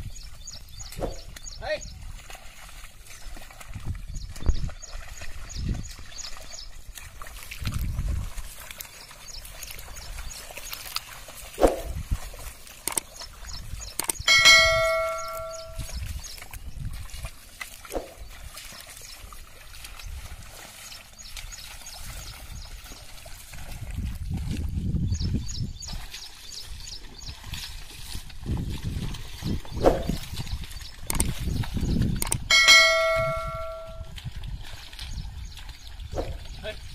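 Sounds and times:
mud and water sloshing: 0:00.0 - 0:36.9
click and bell ding: 0:14.3 - 0:15.8, 0:32.2 - 0:34.1.

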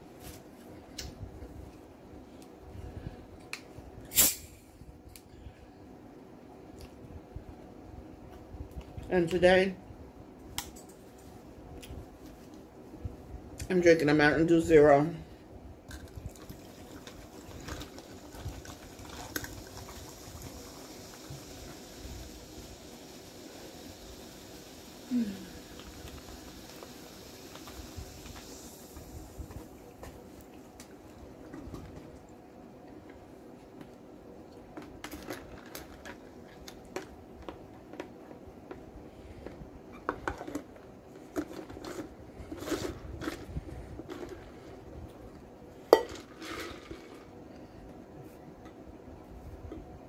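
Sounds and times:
soda fizzing in plastic bottle: 0:16.3 - 0:29.4.

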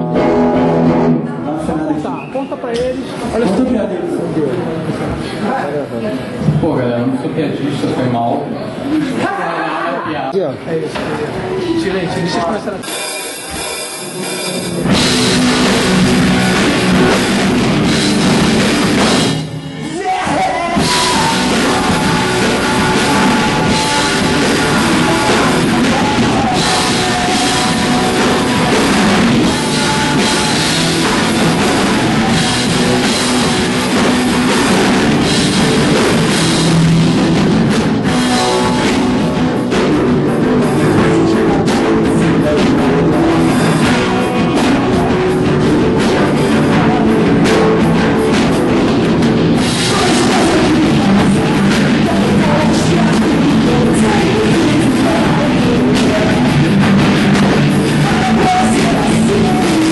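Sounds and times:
heavy rock band playing: 0:00.0 - 0:01.8, 0:12.4 - 0:59.9
crashing cymbals: 0:12.8 - 0:16.4.

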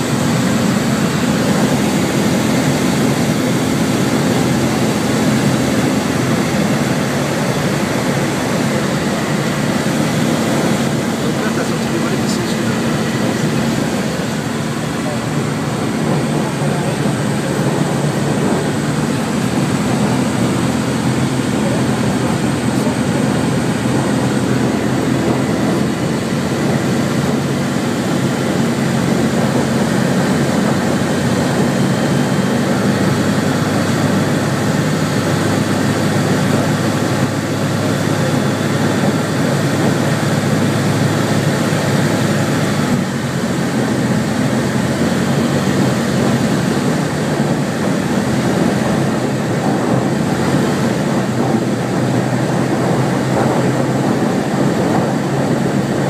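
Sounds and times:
aircraft engine and propeller: 0:00.0 - 0:56.0
airflow noise: 0:00.0 - 0:56.0.

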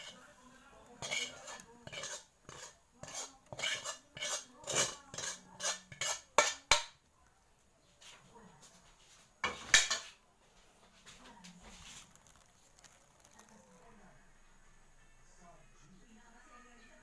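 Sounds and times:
utensil scraping metal pan: 0:00.0 - 0:00.2, 0:01.0 - 0:06.8.

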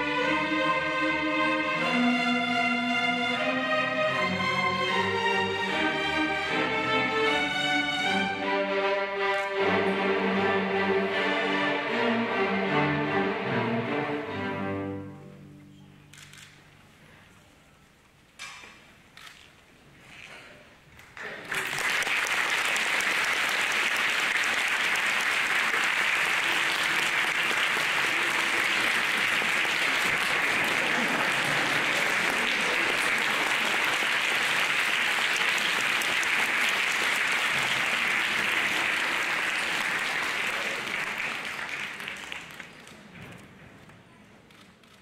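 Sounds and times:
audience applauding: 0:21.0 - 0:43.1.

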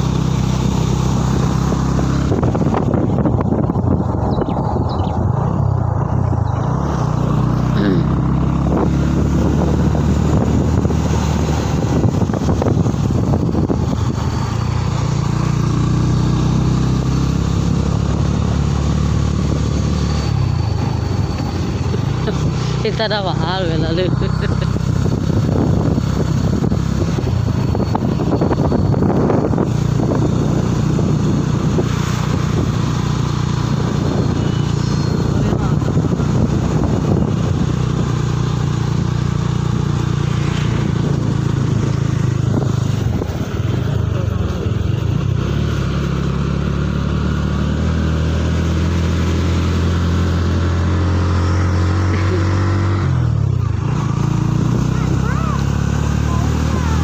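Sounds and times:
wind noise on microphone: 0:00.0 - 0:15.7, 0:23.8 - 0:45.5
motorcycle engine running: 0:00.0 - 0:57.0.

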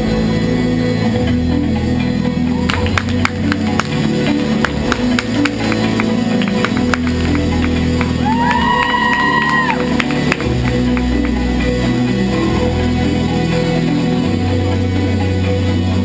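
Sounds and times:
music over loudspeakers: 0:00.0 - 0:16.0
person whooping: 0:08.2 - 0:10.0.

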